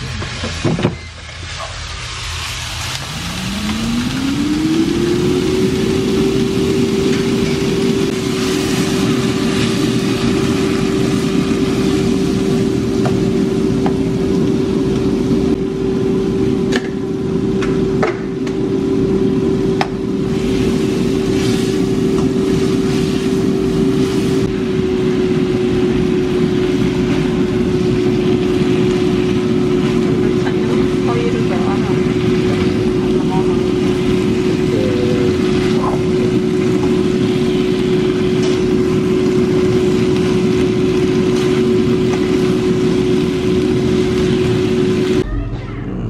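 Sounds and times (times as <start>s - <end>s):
meat and peppers sizzling in pan: 0.0s - 45.3s
motor humming: 27.9s - 38.0s.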